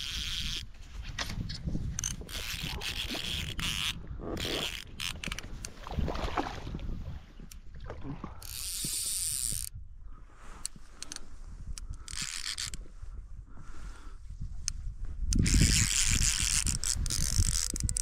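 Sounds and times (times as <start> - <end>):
fly fishing line handling clicks: 0.0 - 5.8, 8.4 - 9.8, 10.6 - 12.8, 14.6 - 18.0.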